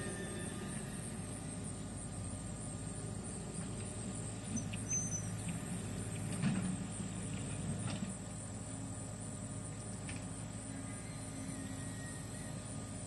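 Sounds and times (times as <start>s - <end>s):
faint high steady tone: 0.0s - 3.1s, 10.6s - 13.0s.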